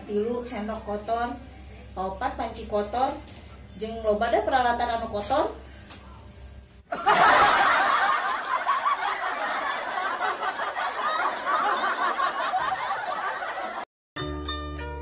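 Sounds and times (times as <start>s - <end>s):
canned laughter: 6.9s - 13.8s.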